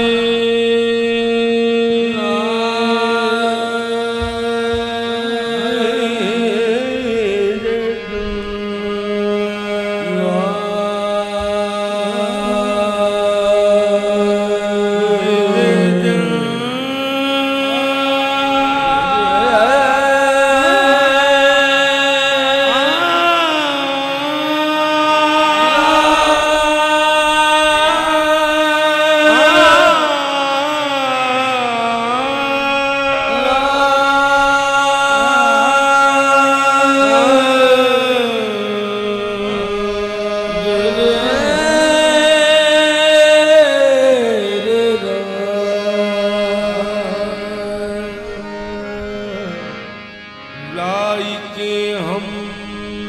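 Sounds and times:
harmonium notes: 0:00.0 - 0:53.0
person singing wordlessly: 0:08.9 - 0:49.5
person singing wordless held notes: 0:33.3 - 0:38.5.

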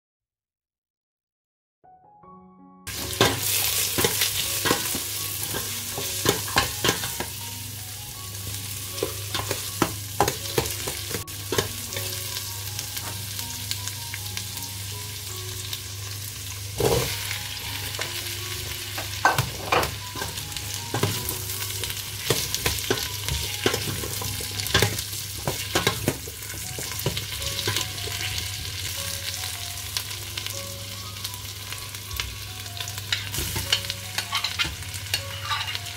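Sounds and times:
vegetables sizzling in a pot: 0:02.9 - 0:35.9
metal spoon scraping a pot: 0:34.2 - 0:35.9.

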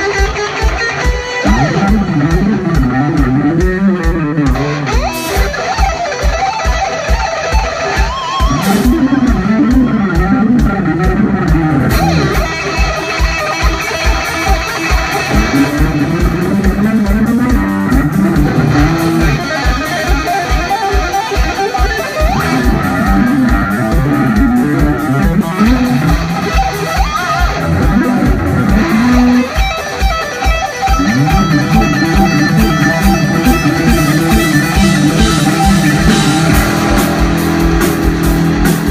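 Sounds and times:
bass guitar: 0:00.0 - 0:38.9
electric guitar lead: 0:00.0 - 0:38.9
steady drum beat: 0:00.0 - 0:38.9.

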